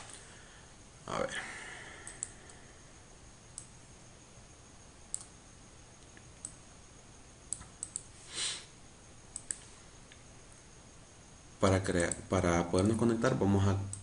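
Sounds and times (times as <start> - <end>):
computer mouse clicks: 2.0 - 2.4, 3.5 - 3.8, 5.1 - 5.3, 6.0 - 6.6, 7.5 - 8.1, 9.3 - 10.2, 11.9 - 12.3.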